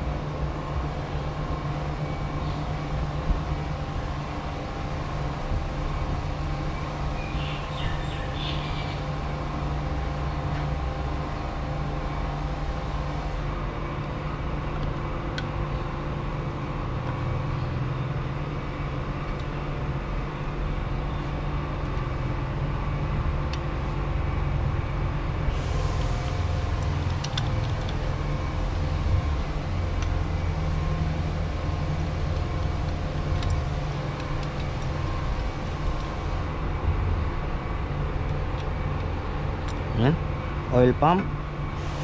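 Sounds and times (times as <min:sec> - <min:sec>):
low background rumble: 0:00.0 - 0:42.0.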